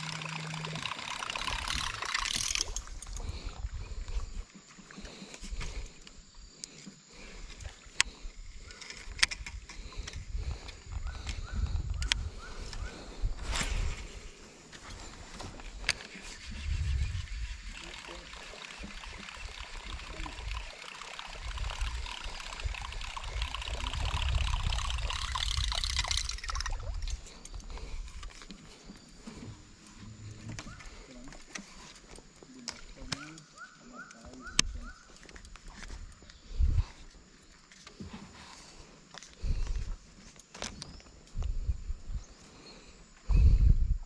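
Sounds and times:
sharp mechanical clicks: 0:00.0 - 0:03.2, 0:17.7 - 0:27.7
fishing reel winding: 0:00.0 - 0:03.6, 0:15.7 - 0:28.5
water trickling and splashing: 0:00.0 - 0:05.8, 0:15.9 - 0:33.3
faint insect drone: 0:00.0 - 0:44.0.

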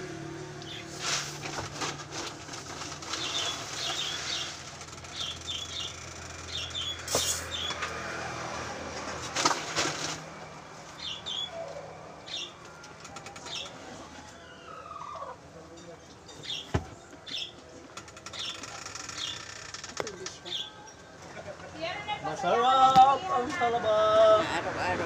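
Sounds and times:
small birds chirping: 0:00.6 - 0:00.9, 0:03.0 - 0:07.8, 0:11.0 - 0:12.6, 0:16.3 - 0:17.6, 0:18.2 - 0:19.5.

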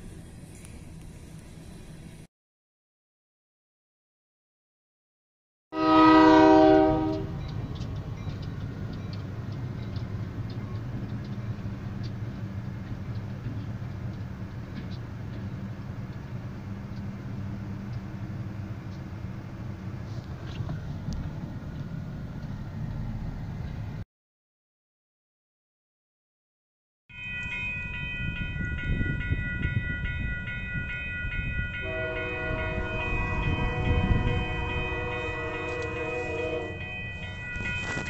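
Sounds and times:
locomotive air horn blast: 0:05.8 - 0:07.4, 0:31.8 - 0:36.9
low rumble inside moving car: 0:07.1 - 0:24.0.

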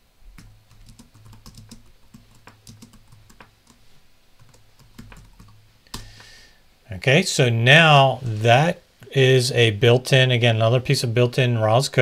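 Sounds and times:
laptop keyboard typing: 0:00.3 - 0:06.3.

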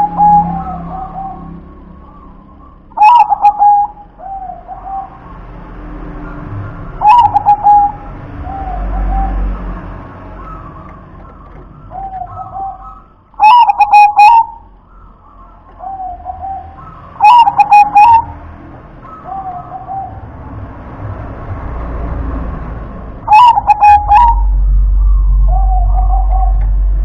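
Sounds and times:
dove cooing: 0:00.0 - 0:05.4, 0:06.7 - 0:09.8, 0:10.4 - 0:18.4, 0:19.0 - 0:20.6, 0:23.3 - 0:26.8
low rumble: 0:20.1 - 0:27.0.

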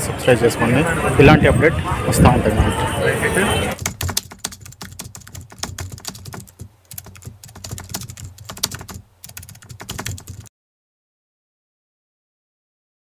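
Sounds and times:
keyboard typing: 0:03.8 - 0:10.5.

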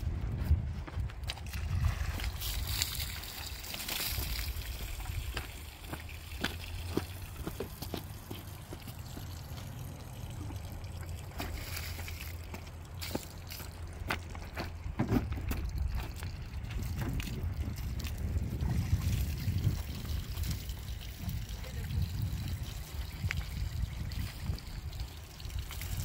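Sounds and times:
small splashes and knocks: 0:01.2 - 0:21.9
river water flowing: 0:02.4 - 0:14.8.

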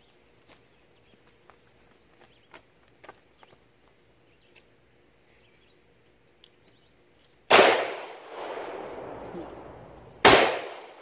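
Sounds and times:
pistol shots: 0:07.5 - 0:11.0.

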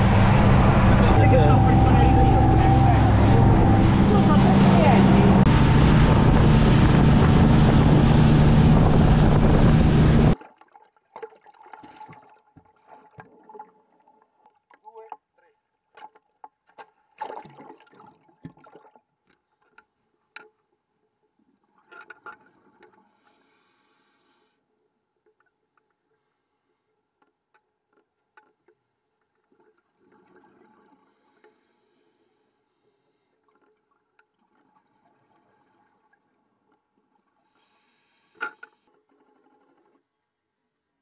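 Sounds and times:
underwater gurgling: 0:00.0 - 0:14.4.

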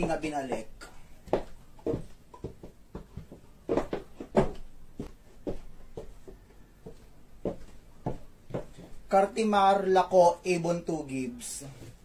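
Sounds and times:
high heels on wooden floor: 0:00.0 - 0:09.1.

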